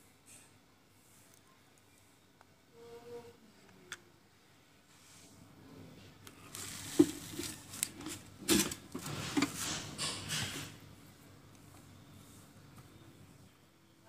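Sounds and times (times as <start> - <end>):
phone handling rustling and scraping: 6.3 - 10.4.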